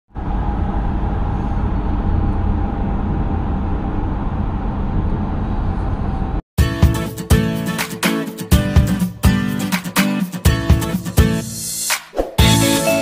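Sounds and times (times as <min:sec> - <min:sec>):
road and engine rumble in car: 0:00.1 - 0:06.4
strummed acoustic guitar music: 0:06.6 - 0:11.6.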